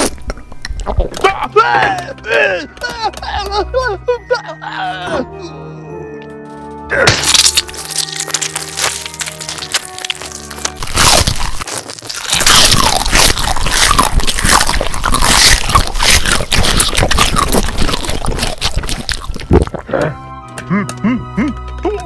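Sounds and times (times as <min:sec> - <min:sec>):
monster crunching and chewing: 0:00.0 - 0:01.3, 0:07.0 - 0:20.2.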